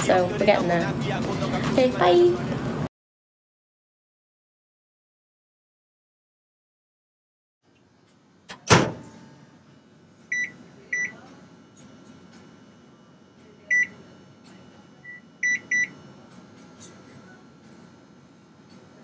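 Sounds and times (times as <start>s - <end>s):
microwave door shutting: 8.5s - 9.4s
high electronic keypad beeps: 10.3s - 11.2s, 13.7s - 14.0s, 15.0s - 16.0s.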